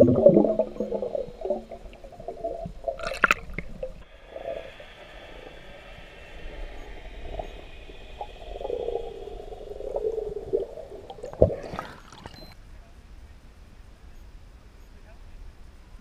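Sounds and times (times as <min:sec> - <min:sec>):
underwater air bubbles burbling: 0:00.0 - 0:04.7, 0:06.8 - 0:12.6.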